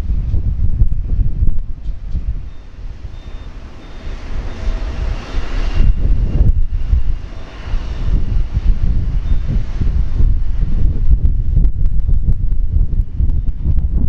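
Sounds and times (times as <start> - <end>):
jet airliner hum: 0.0 - 14.0
wind rumble on microphone: 0.0 - 14.0.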